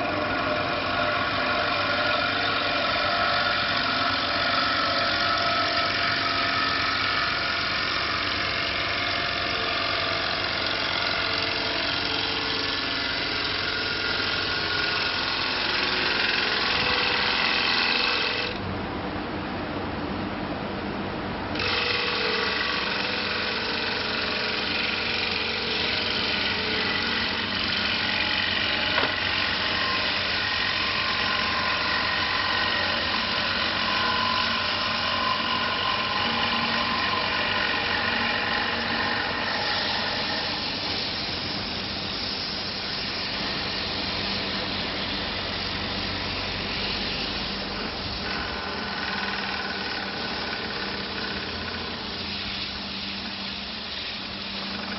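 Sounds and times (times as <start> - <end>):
lathe motor hum and whine: 0.0 - 54.9
hiss of wood being worked: 21.6 - 54.9.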